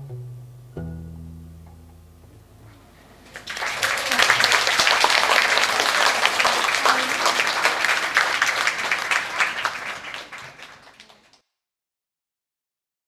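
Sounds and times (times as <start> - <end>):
audience clapping: 3.2 - 11.4.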